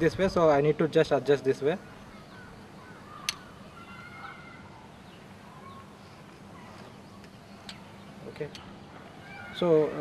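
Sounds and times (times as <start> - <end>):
steady low hum: 0.0 - 10.0
distant bird chirps: 1.6 - 10.0
sharp click: 3.2 - 3.4.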